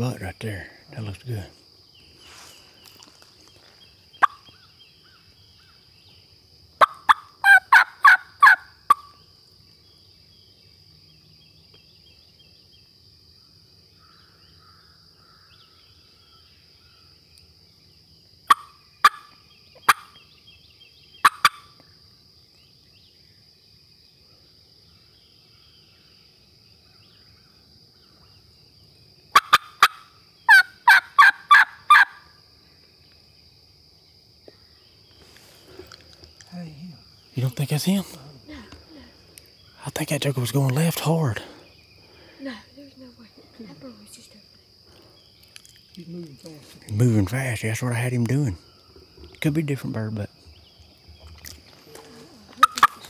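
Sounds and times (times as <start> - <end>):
turkey clucks: 4.2 - 4.6, 6.8 - 9.1, 18.5 - 20.2, 21.2 - 21.7, 29.4 - 32.2, 52.0 - 53.0
turkey yelping: 4.2 - 4.6, 6.8 - 9.1, 18.5 - 20.1, 21.2 - 21.7, 29.4 - 32.3, 52.6 - 53.0.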